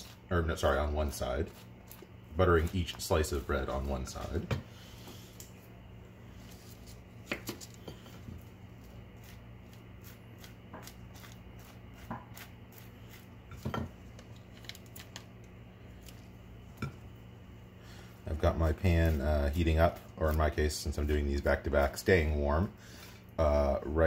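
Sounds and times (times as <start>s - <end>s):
faint steady hum: 0.0s - 24.0s
knife spreading butter on bread: 6.4s - 13.8s.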